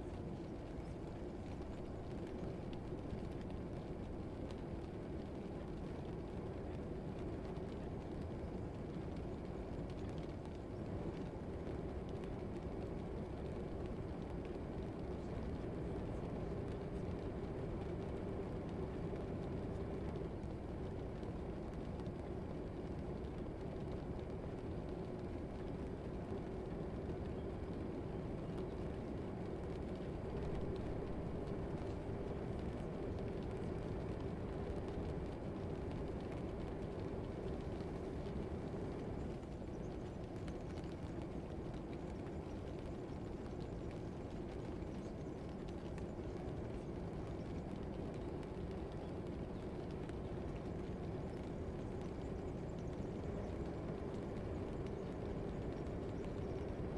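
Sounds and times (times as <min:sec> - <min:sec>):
faint constant hum: 0:00.0 - 0:56.9
low background rumble: 0:00.0 - 0:56.9.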